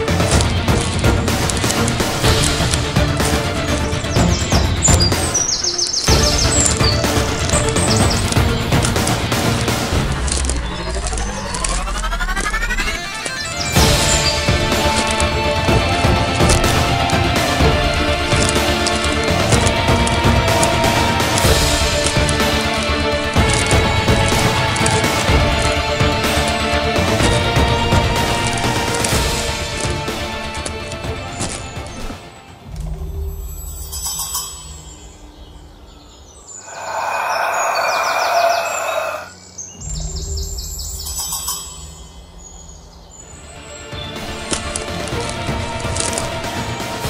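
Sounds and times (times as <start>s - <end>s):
birds chirping: 0.0s - 47.0s
tense film score: 0.0s - 47.0s
low drone: 36.4s - 44.4s.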